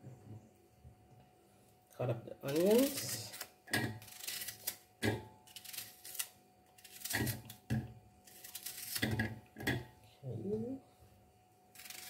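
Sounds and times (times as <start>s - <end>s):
knife slicing onion: 2.4s - 7.7s.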